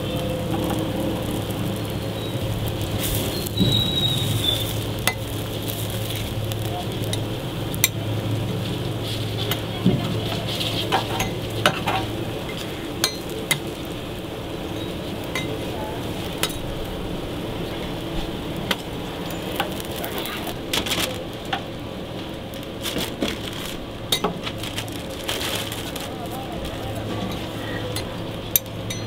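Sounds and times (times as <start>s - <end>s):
burger patties sizzling on griddle: 0.0s - 29.0s
metal spatula scraping griddle: 8.6s - 12.8s.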